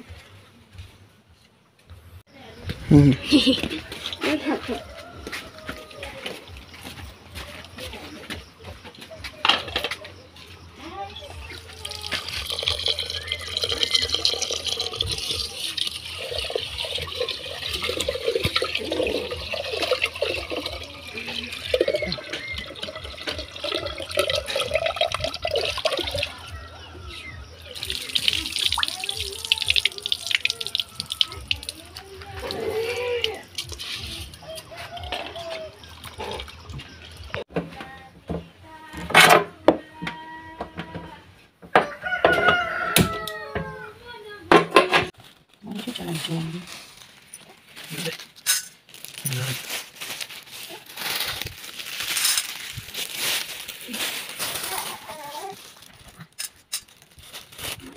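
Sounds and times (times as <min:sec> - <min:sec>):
hands stirring rice in water: 0:11.4 - 0:26.5, 0:27.7 - 0:37.4
tap water running into pot: 0:11.5 - 0:26.4, 0:27.7 - 0:32.6.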